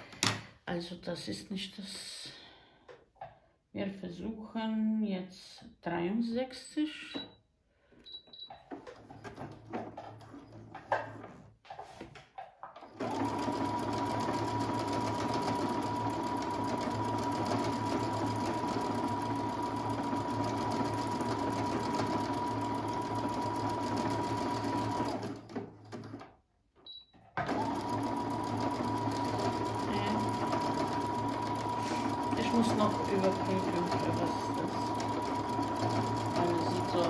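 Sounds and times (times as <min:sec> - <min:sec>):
sewing machine running: 0:12.8 - 0:26.3, 0:27.4 - 0:37.0.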